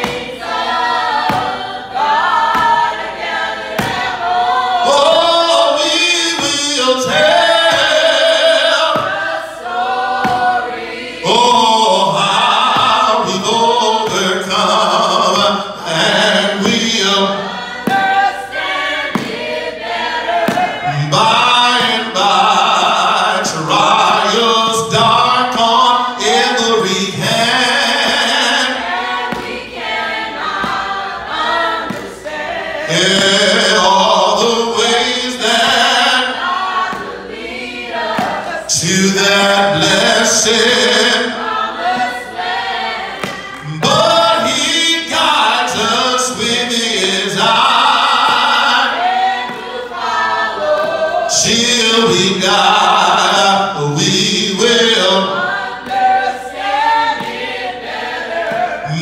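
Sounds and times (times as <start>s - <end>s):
man singing a slow hymn: 4.8s - 9.2s, 11.2s - 18.1s, 20.8s - 28.8s, 32.8s - 36.4s, 38.6s - 41.4s, 43.6s - 48.9s, 51.3s - 55.5s, 58.6s - 59.0s.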